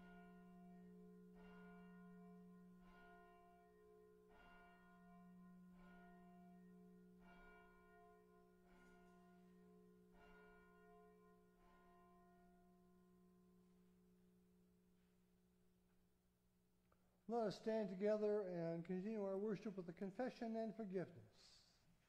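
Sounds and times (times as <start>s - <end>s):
church bell tolling faintly: 0.0s - 14.0s.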